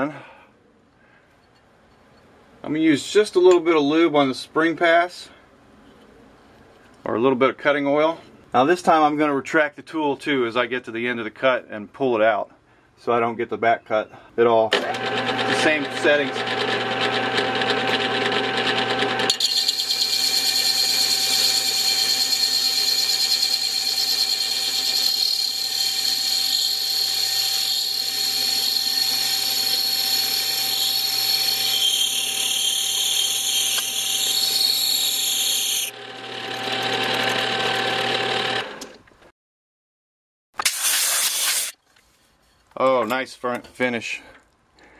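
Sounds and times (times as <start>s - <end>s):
lathe motor hum: 14.8s - 38.9s
high cutting sound on metal: 19.3s - 37.5s, 40.6s - 41.8s.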